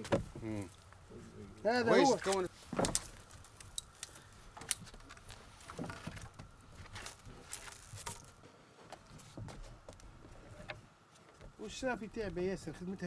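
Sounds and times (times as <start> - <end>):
small clicks and ticks: 2.3 - 5.4.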